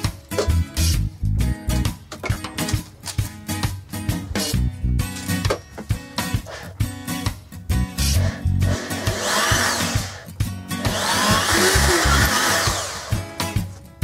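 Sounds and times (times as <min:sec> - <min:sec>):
background music: 0:00.0 - 0:14.0
electric drill boring into wood: 0:08.1 - 0:13.4.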